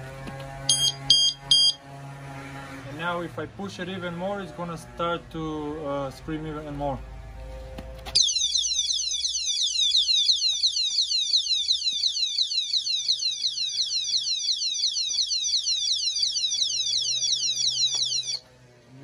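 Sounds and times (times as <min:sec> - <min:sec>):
electronic alarm siren: 0:00.5 - 0:02.8, 0:08.2 - 0:18.4.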